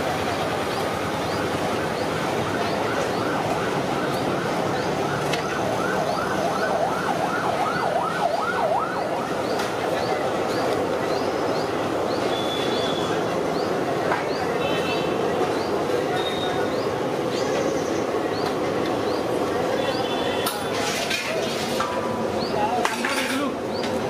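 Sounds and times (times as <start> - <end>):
street traffic noise: 0.0 - 24.0
electronic siren yelping: 1.2 - 9.6.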